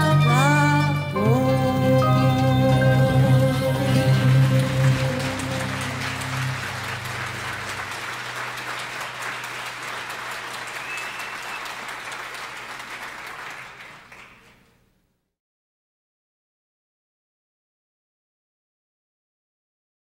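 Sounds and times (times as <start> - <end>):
band's low note: 1.2 - 8.4
audience applauding: 2.8 - 14.8.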